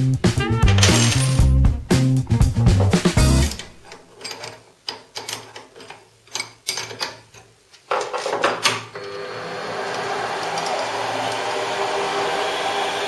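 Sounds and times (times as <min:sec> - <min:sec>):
clicks and knocks of handling: 0:02.8 - 0:08.9
lathe motor whirring: 0:09.0 - 0:13.0.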